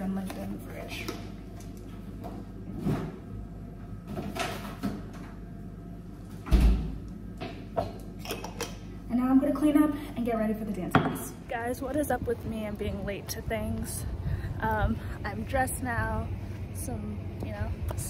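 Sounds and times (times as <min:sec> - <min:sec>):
refrigerator door thud: 0:06.4 - 0:07.0.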